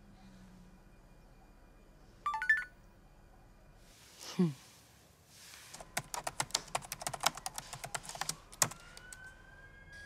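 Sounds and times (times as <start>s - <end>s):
typing on laptop keyboard: 5.7s - 9.3s.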